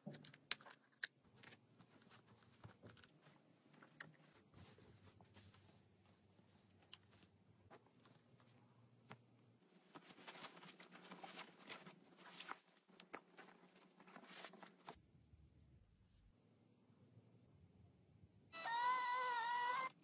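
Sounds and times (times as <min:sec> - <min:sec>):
padded fabric rustling: 0:03.2 - 0:15.0.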